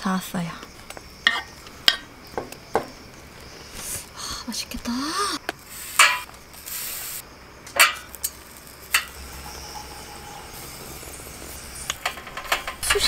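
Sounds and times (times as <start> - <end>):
salt pouring into cup: 5.6 - 7.2, 8.1 - 12.4
metal tongs clicking on grill mesh: 6.0 - 6.3, 7.7 - 9.2, 11.9 - 13.0.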